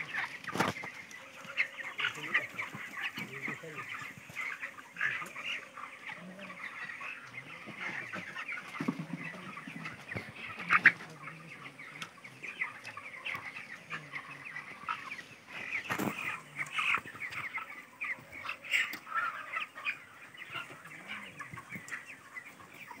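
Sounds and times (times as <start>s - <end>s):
chickens peeping and clucking: 0.0s - 23.0s.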